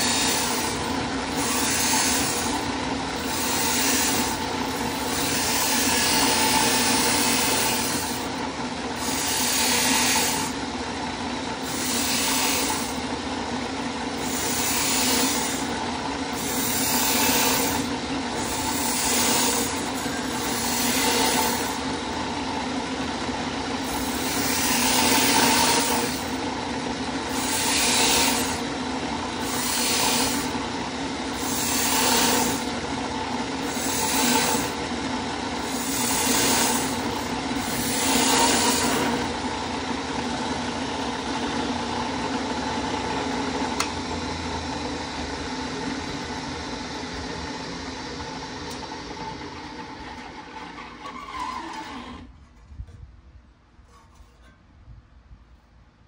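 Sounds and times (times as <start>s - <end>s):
drill press motor hum: 0.0s - 52.4s
wire brush scratching metal: 23.9s - 26.4s, 33.7s - 34.8s, 35.7s - 39.3s, 53.8s - 54.6s.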